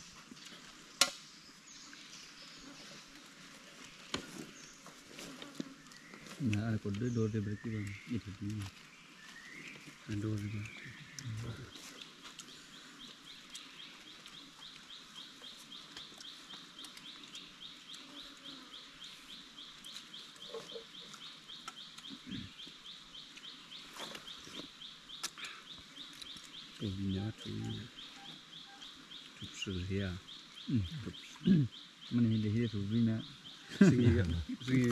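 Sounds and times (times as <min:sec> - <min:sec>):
animal pulsing chirp: 0:26.8 - 0:34.9.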